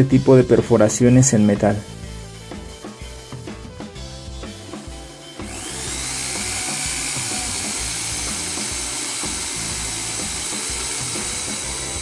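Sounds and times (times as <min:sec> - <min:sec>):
hammer drill drilling into steel: 0:05.4 - 0:12.0.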